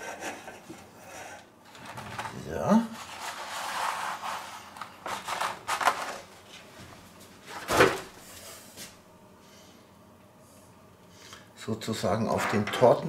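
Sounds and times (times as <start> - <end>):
baking mat rustling: 1.7 - 8.9.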